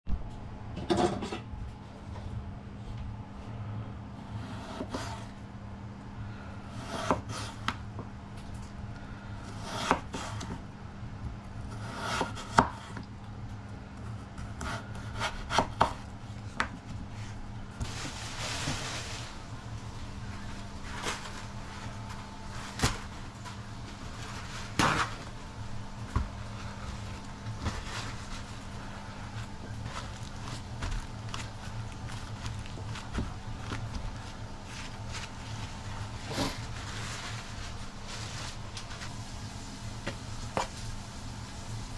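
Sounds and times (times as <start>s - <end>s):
knife scraping board: 4.3s - 5.4s, 6.7s - 7.8s, 9.5s - 10.6s, 11.7s - 13.0s
knife slicing potato on board: 4.4s - 5.3s, 6.7s - 7.8s, 9.5s - 10.6s, 11.6s - 13.0s, 14.2s - 16.0s.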